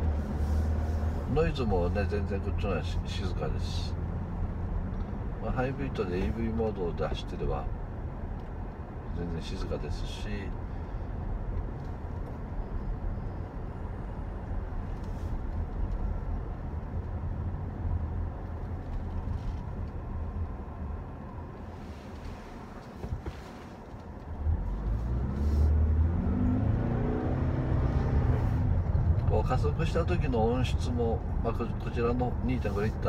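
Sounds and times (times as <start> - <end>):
road and tyre rumble: 0.0 - 33.0
car engine accelerating: 21.9 - 31.8.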